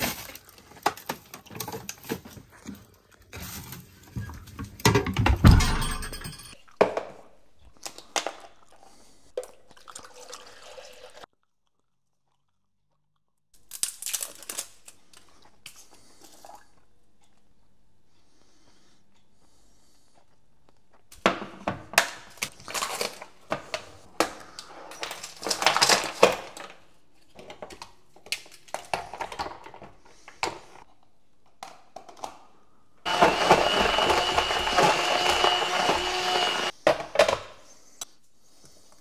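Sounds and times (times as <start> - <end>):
electric kitchen motor whining: 33.1 - 36.8.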